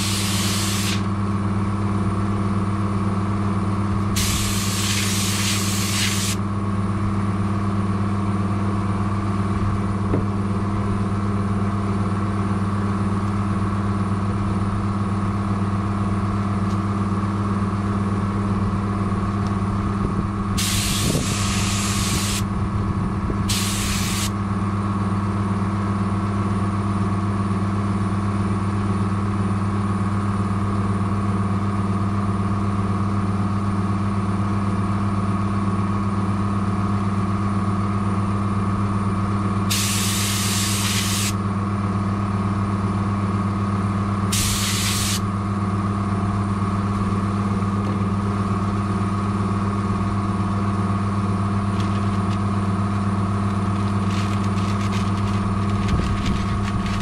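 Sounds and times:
compressed air gun hissing: 0:00.0 - 0:01.2, 0:04.1 - 0:06.4, 0:20.6 - 0:22.4, 0:23.5 - 0:24.3, 0:39.7 - 0:41.4, 0:44.3 - 0:45.2
steady machine hum: 0:00.0 - 0:27.0, 0:37.4 - 0:57.0.

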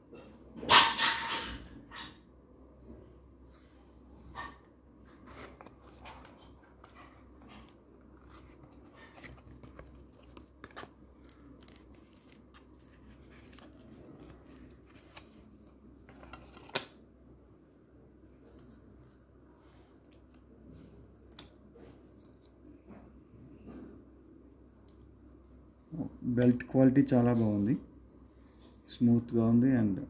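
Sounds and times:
cardboard and plastic rustling: 0:05.1 - 0:16.9.

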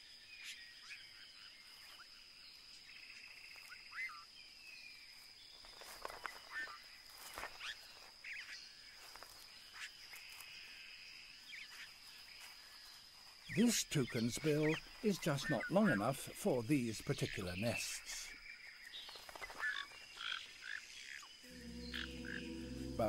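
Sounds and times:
high insect-like whine: 0:20.6 - 0:23.0.

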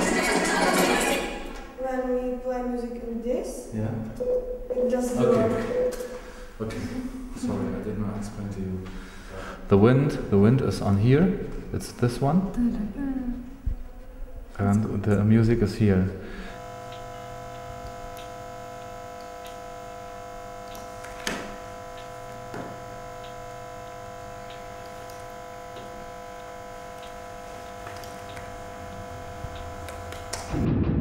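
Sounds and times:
electronic drone: 0:16.2 - 0:31.0.

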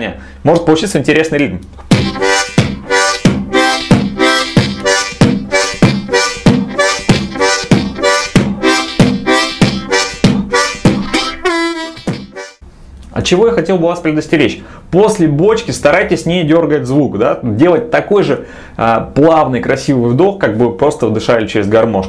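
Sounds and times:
beatboxed kick drum: 0:01.9 - 0:12.6
harmonica: 0:01.9 - 0:12.6.

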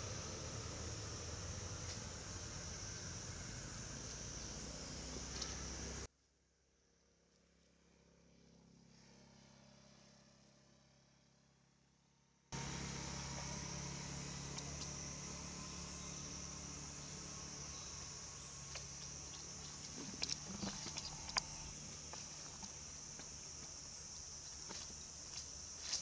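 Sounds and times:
high-pitched insect chorus: 0:00.0 - 0:06.1, 0:12.6 - 0:26.0.

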